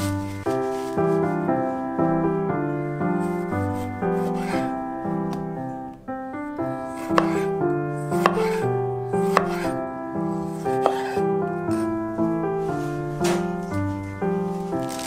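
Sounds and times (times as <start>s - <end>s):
light background music: 0.0s - 15.0s
knife slicing tomato: 3.3s - 4.8s, 6.8s - 9.8s, 10.4s - 11.9s
knife knocking on cutting board: 7.1s - 7.5s, 8.2s - 8.6s, 9.3s - 9.7s, 10.8s - 11.2s.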